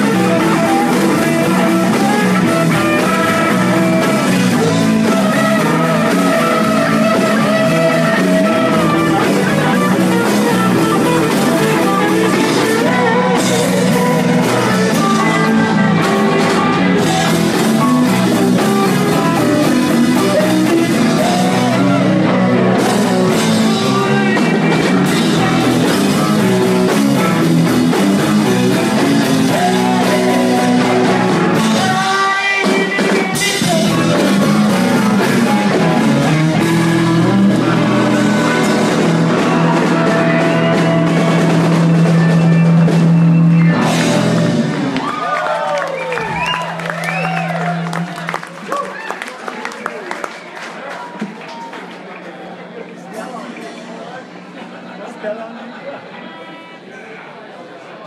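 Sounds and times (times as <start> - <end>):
person singing: 0.0 - 42.8
drum kit: 0.0 - 45.2
electric guitar: 0.0 - 49.2.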